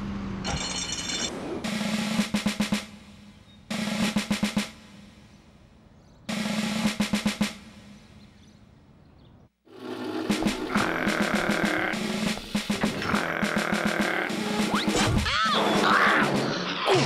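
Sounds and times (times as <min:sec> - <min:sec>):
snare drum rolls: 0:01.6 - 0:05.2, 0:06.3 - 0:08.0, 0:10.1 - 0:13.0.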